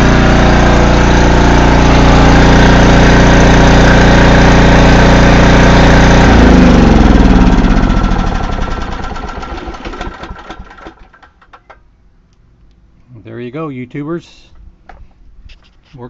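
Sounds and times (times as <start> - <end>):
generator engine winding down: 0.0 - 11.7.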